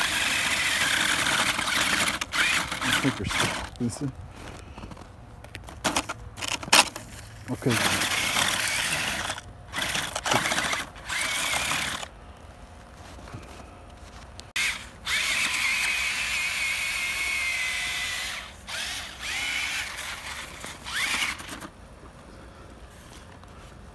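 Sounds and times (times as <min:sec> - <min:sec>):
electric motor whining: 0:00.0 - 0:04.1, 0:07.6 - 0:12.1, 0:14.6 - 0:21.7.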